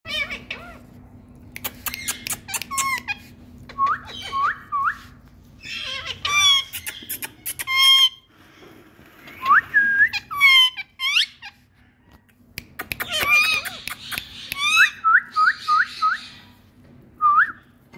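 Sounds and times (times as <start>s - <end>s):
parakeets squawking: 0.1s - 0.8s, 1.7s - 3.4s, 4.0s - 4.7s, 5.6s - 8.3s, 10.1s - 11.7s, 13.0s - 15.0s
parakeets rising whistles: 9.3s - 11.5s, 13.1s - 16.6s.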